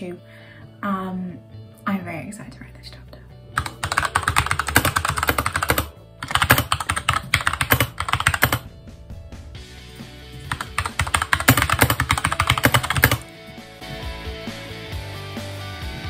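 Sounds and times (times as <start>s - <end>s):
mechanical keyboard typing: 3.6s - 8.6s, 10.4s - 13.2s.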